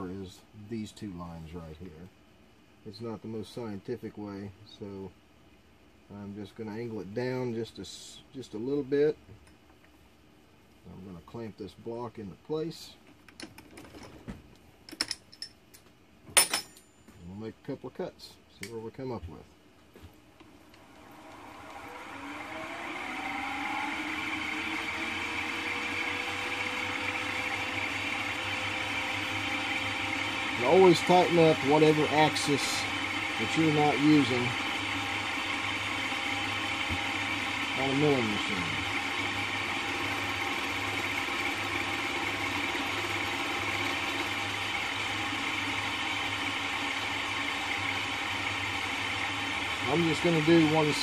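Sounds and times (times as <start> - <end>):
milling machine motor whine: 20.4 - 51.0.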